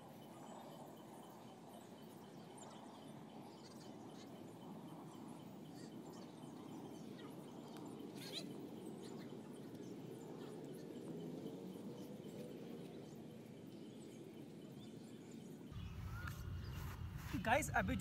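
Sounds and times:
steady low rumble: 15.7s - 18.0s.

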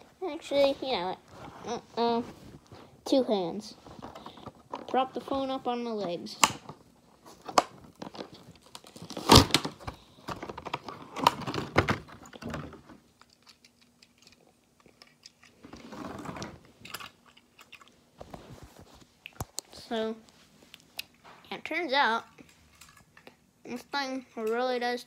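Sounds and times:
plastic packaging crinkling: 7.2s - 12.6s.

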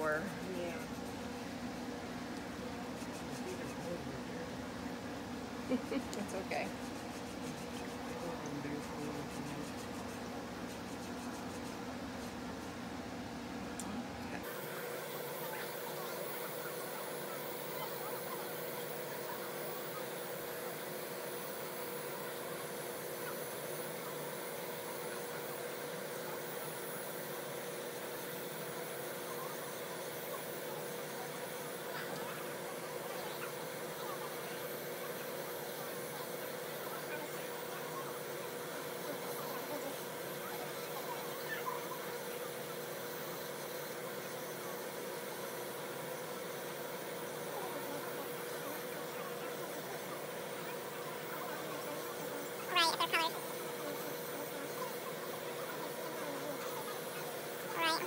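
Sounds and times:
electric nail drill humming: 14.4s - 40.4s.

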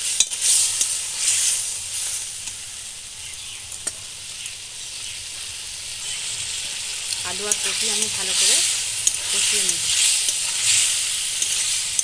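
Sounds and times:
potato wedges sizzling in oil: 0.0s - 12.0s
spatula stirring and scraping: 6.0s - 12.0s.

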